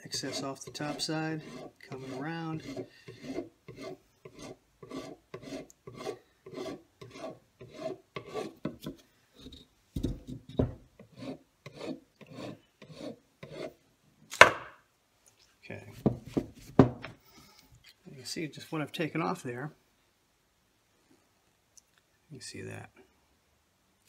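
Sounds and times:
file rasping on epoxy: 0:00.0 - 0:09.0, 0:11.0 - 0:13.8.

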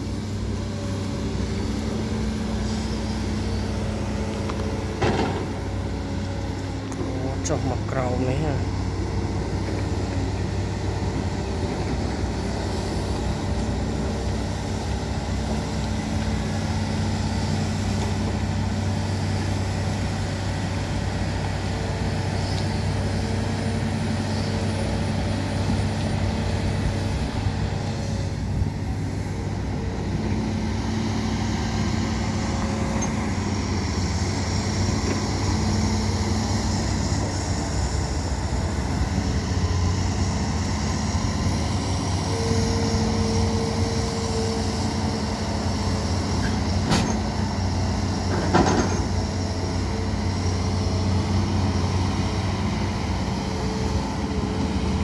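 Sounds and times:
excavator diesel engine running: 0:00.0 - 0:55.0
hydraulics working: 0:00.0 - 0:55.0.

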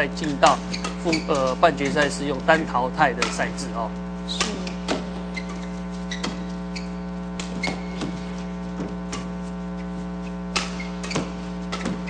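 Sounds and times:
steady electrical hum: 0:00.0 - 0:12.0
racket striking shuttlecock: 0:00.2 - 0:03.7, 0:04.3 - 0:06.6, 0:07.3 - 0:09.4, 0:10.4 - 0:12.0
short high squeaks: 0:00.3 - 0:02.2, 0:04.3 - 0:08.5, 0:09.1 - 0:12.0.

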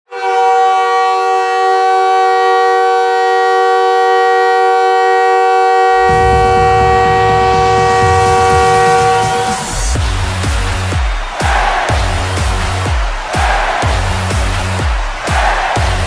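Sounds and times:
arena goal horn: 0:00.1 - 0:10.0
music with heavy low beat: 0:06.0 - 0:16.0.

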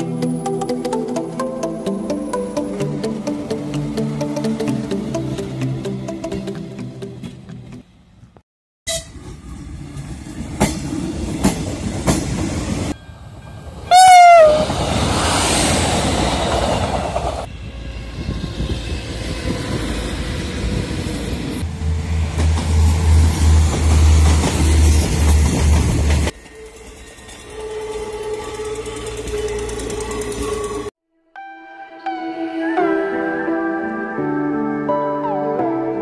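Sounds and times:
train rumbling on track: 0:08.9 - 0:30.9
wavering train horn blast: 0:13.8 - 0:14.8.

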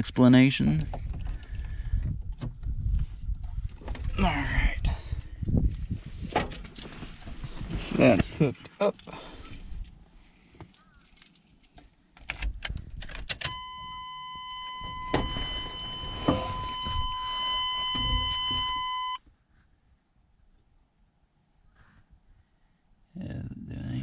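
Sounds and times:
keys rattling and clicking: 0:08.9 - 0:13.5
electronic warning tone: 0:13.5 - 0:19.2
soft thumps: 0:14.9 - 0:19.0.

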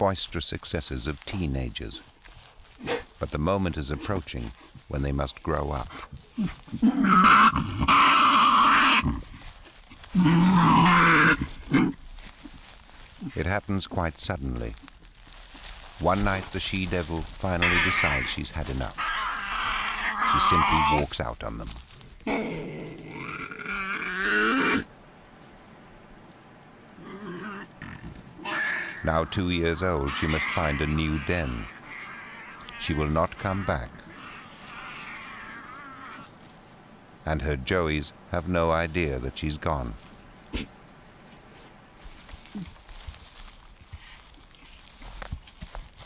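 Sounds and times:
animals screeching and growling: 0:05.7 - 0:09.4, 0:10.0 - 0:12.0, 0:16.1 - 0:24.9, 0:27.0 - 0:36.8.

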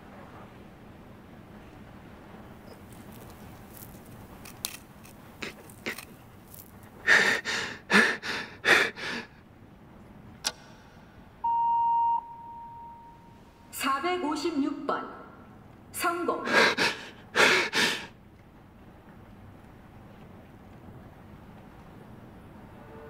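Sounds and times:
man breathing hard: 0:07.0 - 0:09.4, 0:16.5 - 0:18.2
click: 0:10.4 - 0:10.7
timer beep: 0:11.4 - 0:13.3.

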